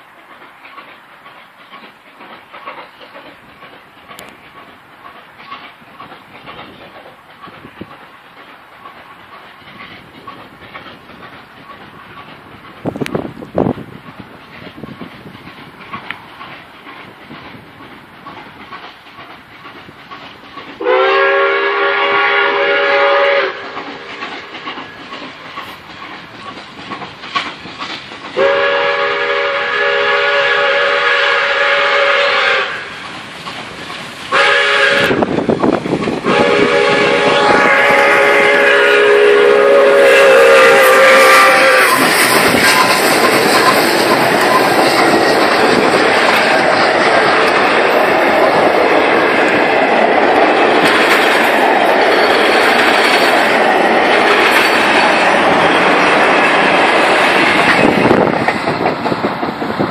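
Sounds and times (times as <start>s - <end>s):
steam locomotive exhaust and running: 0.0s - 59.9s
steam locomotive chime whistle: 20.8s - 24.1s, 28.4s - 33.0s, 34.3s - 35.3s, 36.2s - 45.0s.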